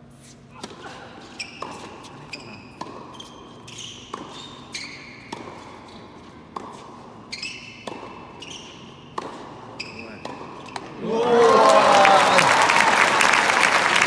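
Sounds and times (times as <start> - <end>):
shoes squeaking on court: 0.0 - 11.0
tennis ball hit by rackets: 0.6 - 11.0.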